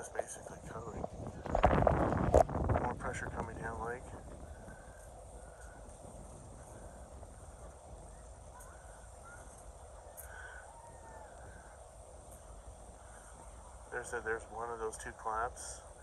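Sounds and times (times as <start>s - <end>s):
wind rumble on microphone: 0.0s - 16.0s
faint bird calls: 3.6s - 16.0s.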